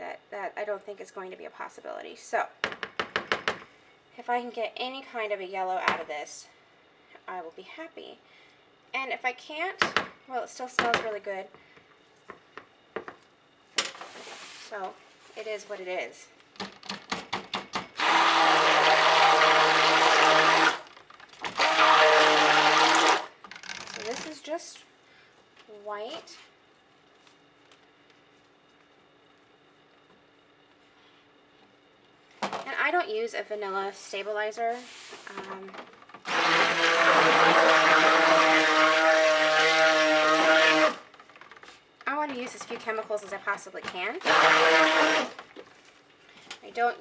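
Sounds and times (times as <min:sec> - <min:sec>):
stick blender running: 0:17.9 - 0:23.4, 0:36.2 - 0:41.3, 0:44.2 - 0:45.6.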